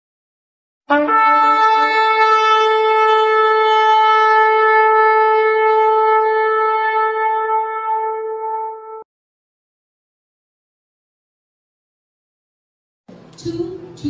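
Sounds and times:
shofar blast: 0:00.9 - 0:09.0.

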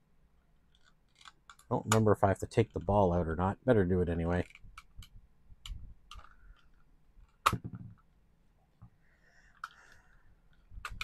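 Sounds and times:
sharp plastic snap: 0:07.3 - 0:07.8.

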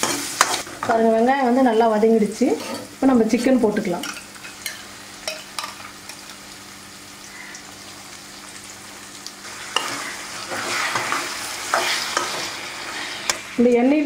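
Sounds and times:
chicken sizzling in hot oil: 0:00.0 - 0:14.0
ladle scraping pan: 0:02.5 - 0:04.8, 0:09.7 - 0:13.4.

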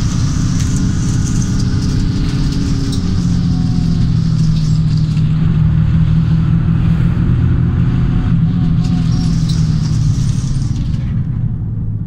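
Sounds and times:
bus diesel engine running: 0:00.0 - 0:12.0
road rumble: 0:00.0 - 0:12.0.

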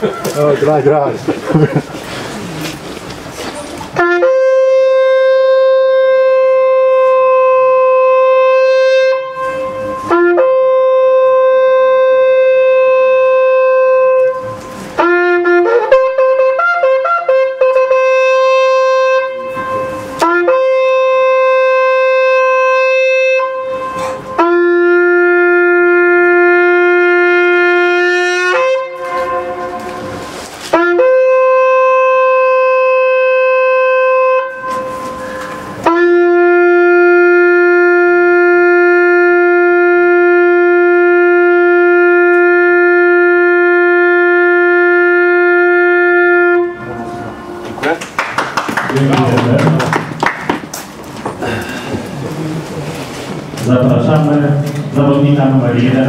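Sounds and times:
horn playing long held calls: 0:04.0 - 0:47.8.

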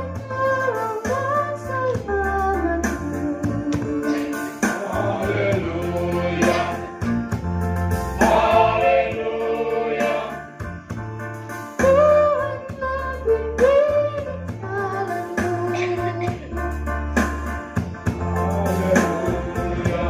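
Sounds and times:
instrumental accompaniment with bass: 0:00.0 - 0:20.0
voices singing gospel: 0:02.8 - 0:10.8, 0:18.4 - 0:20.0.

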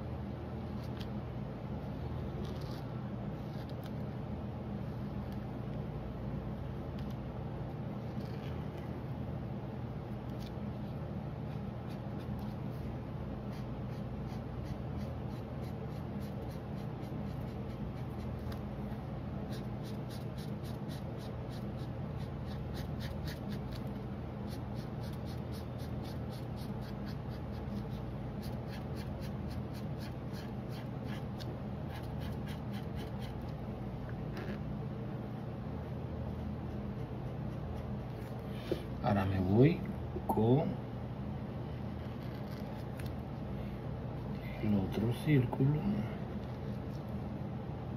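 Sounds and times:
steady low hum: 0:00.0 - 0:47.9
marker scribbling on paper: 0:11.5 - 0:12.8, 0:13.5 - 0:33.5.

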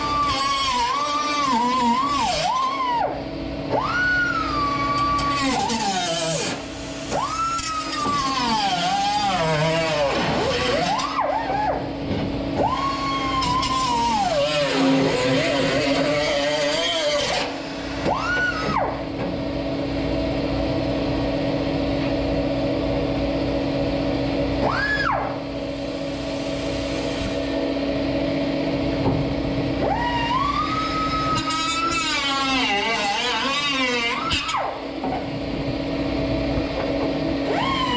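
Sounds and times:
steady low hum: 0:00.0 - 0:37.9
angle grinder cutting steel: 0:05.2 - 0:11.2, 0:13.3 - 0:18.5, 0:31.1 - 0:34.6.

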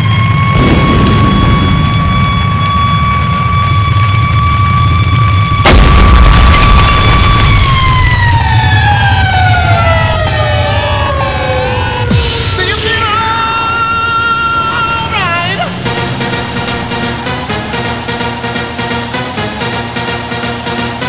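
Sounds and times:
rocket whistle descending: 0:00.0 - 0:08.8
low rumble: 0:00.0 - 0:20.0
loud rocket blast: 0:00.2 - 0:10.2.

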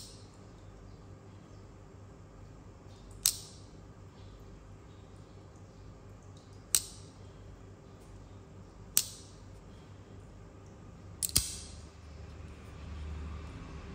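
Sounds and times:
folding knife blade clicking: 0:03.2 - 0:03.6, 0:11.2 - 0:11.8.

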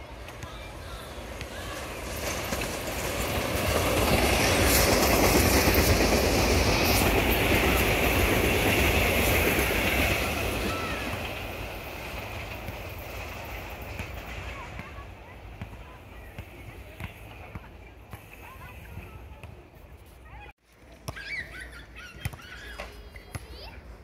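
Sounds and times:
electric train passing at speed: 0:00.0 - 0:19.3.

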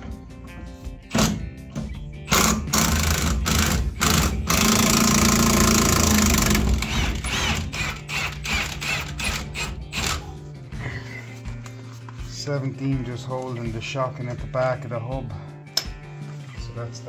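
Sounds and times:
impact wrench hammering: 0:02.3 - 0:10.2.

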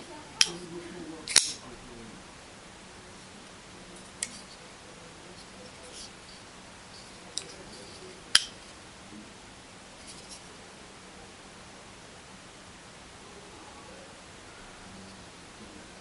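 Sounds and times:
folding knife blade clicks: 0:01.3 - 0:01.6
faint handling rustles: 0:03.5 - 0:08.8.

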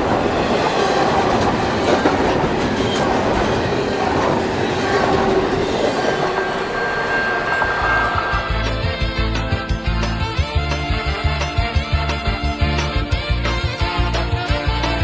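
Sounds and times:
train wheels rumbling on rails: 0:00.0 - 0:09.5.

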